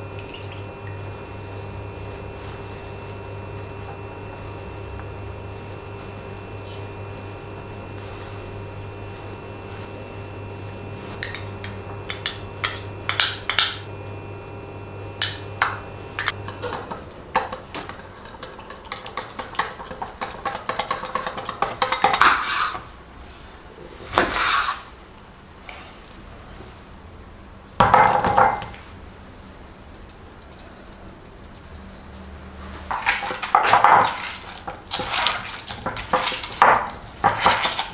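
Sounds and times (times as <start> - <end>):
low background hum: 0.0 - 24.3
whisk beating in glass bowl: 16.2 - 22.6, 32.9 - 37.9.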